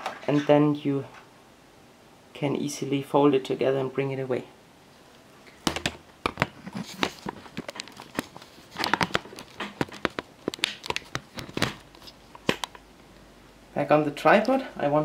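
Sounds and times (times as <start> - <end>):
camera handling clicks and knocks: 5.7 - 12.8
rustling: 6.4 - 12.8.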